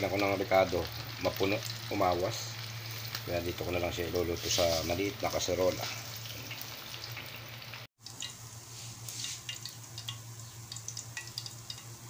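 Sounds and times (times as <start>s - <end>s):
oil sizzling in a pan: 0.0s - 12.0s.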